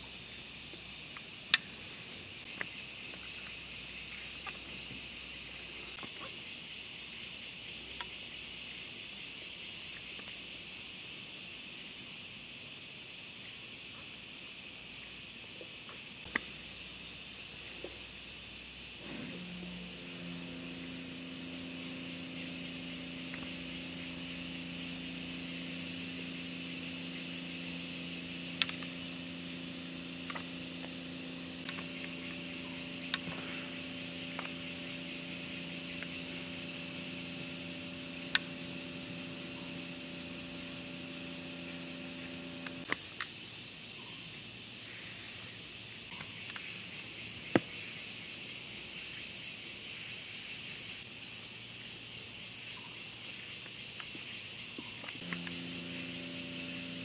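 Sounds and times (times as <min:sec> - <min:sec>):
steady high hiss: 0:00.0 - 0:57.0
low mechanical hum: 0:15.9 - 0:43.3, 0:54.1 - 0:57.0
sharp clicks: 0:28.5 - 0:33.5, 0:37.4 - 0:40.0, 0:55.0 - 0:57.0.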